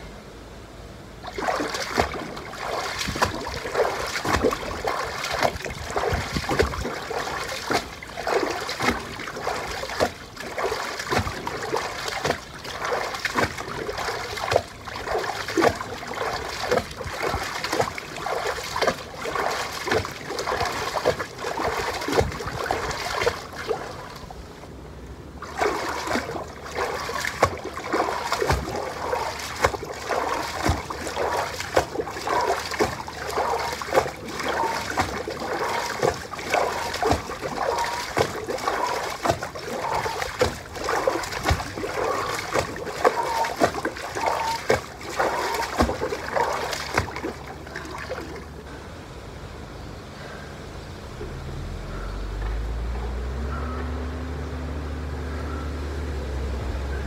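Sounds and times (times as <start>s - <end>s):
footsteps splashing through water: 1.2s - 24.3s, 25.4s - 48.6s.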